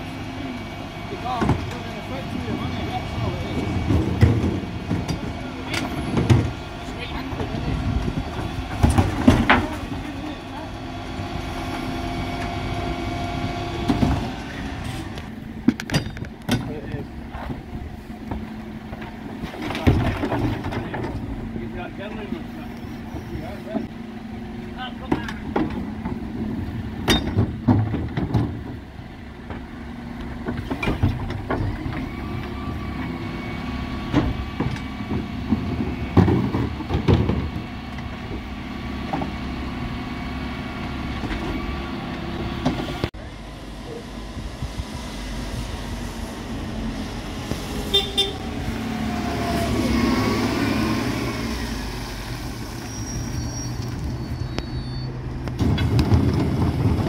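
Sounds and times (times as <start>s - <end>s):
truck engine humming: 0.0s - 57.0s.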